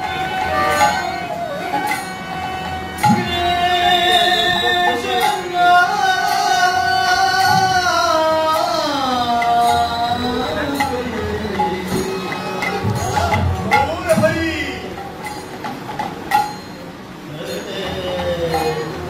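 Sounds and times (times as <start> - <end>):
violin: 0.0 - 6.5
man singing devotional song: 3.0 - 15.0.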